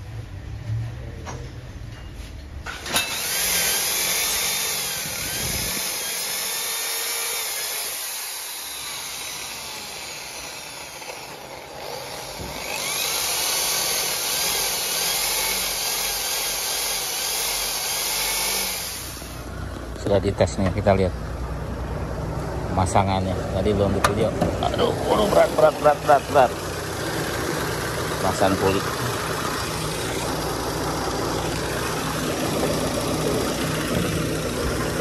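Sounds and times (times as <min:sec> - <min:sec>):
electric grinder grinding metal: 0:02.8 - 0:19.4, 0:24.9 - 0:35.0.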